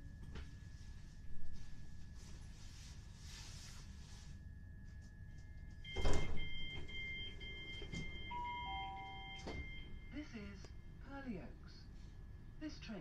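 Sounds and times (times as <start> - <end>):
door warning beeps: 5.8 - 10.2.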